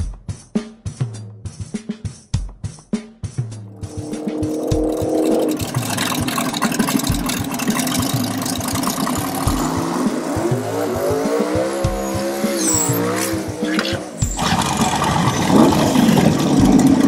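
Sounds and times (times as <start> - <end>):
background music drum beat: 0.0 - 17.0
dragster engine revving: 3.5 - 17.0.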